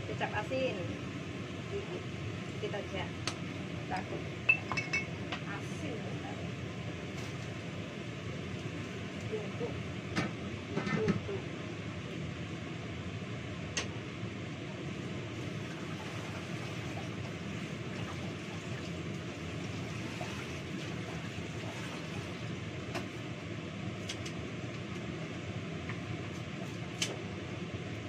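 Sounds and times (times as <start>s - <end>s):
kitchenware clinking: 4.5s - 5.2s
rushing water at sink: 15.4s - 23.1s.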